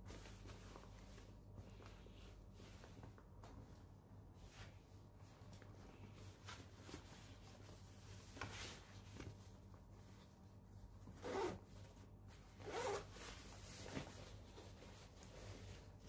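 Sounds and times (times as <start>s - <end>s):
backpack zipper being pulled: 11.2s - 11.6s, 12.6s - 13.1s.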